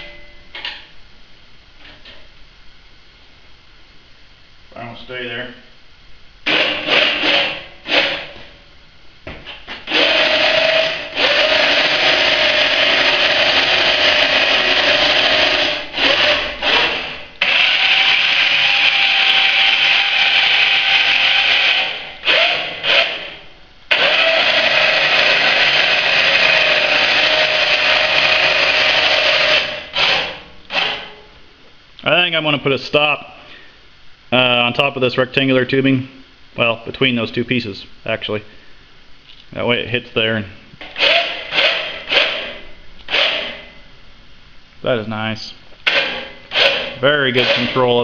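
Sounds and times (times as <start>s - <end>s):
electric winch motor whining: 9.9s - 23.3s, 23.9s - 31.1s.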